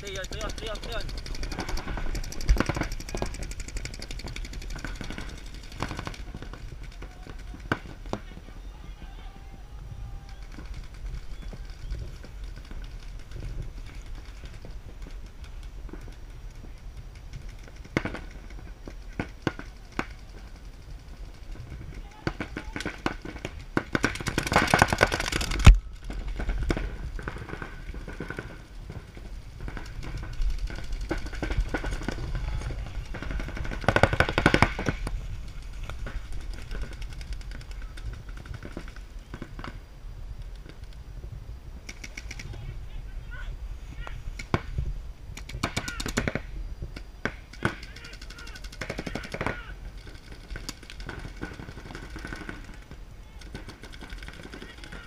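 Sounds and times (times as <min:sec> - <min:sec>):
sharp cracks: 0:00.0 - 0:08.4, 0:10.2 - 0:39.8, 0:41.8 - 0:42.7, 0:44.0 - 0:55.0
paintball markers firing: 0:00.0 - 0:08.5, 0:21.7 - 0:35.2, 0:44.0 - 0:55.0.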